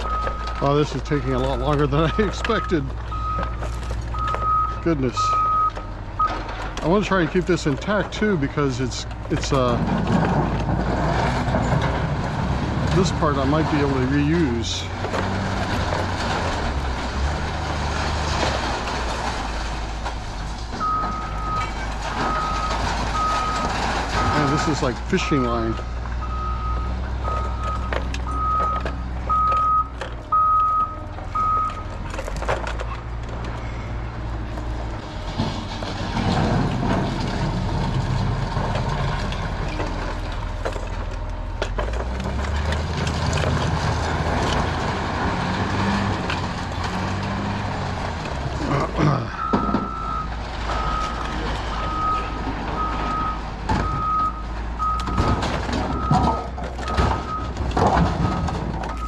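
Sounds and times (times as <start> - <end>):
reversing alarm beeping: 0.0 - 0.6, 1.2 - 6.4, 20.8 - 31.9, 49.4 - 57.5
heavy vehicle engine running: 0.0 - 59.0.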